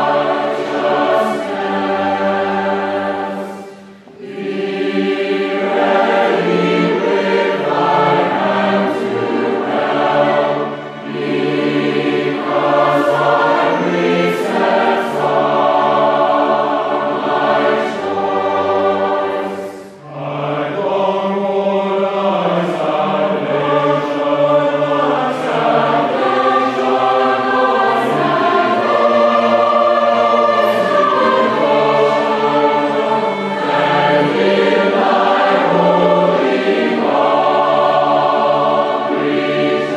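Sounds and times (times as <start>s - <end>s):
choir singing a slow hymn: 0.0s - 39.9s.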